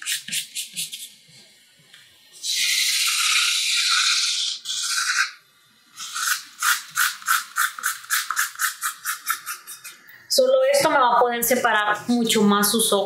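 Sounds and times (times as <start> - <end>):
marker scratching on paper: 0.0 - 1.2, 6.0 - 10.0.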